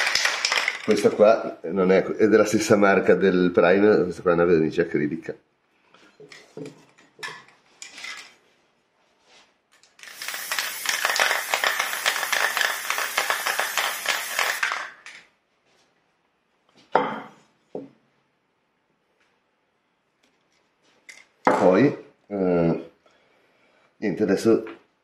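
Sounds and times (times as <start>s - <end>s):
metal paint can shaken clinking: 0.0s - 1.2s, 10.0s - 15.2s.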